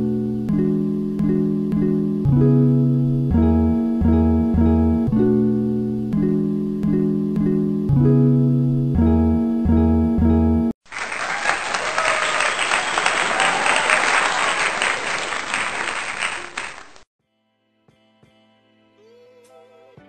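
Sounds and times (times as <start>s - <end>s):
plucked guitar music: 0.0s - 10.7s.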